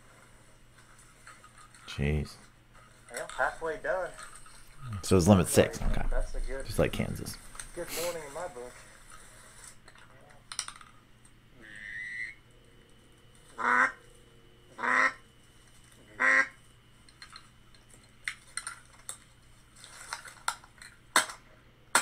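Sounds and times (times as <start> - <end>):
loud duck quacks: 13.6 - 14.0, 14.8 - 15.2, 16.1 - 16.6.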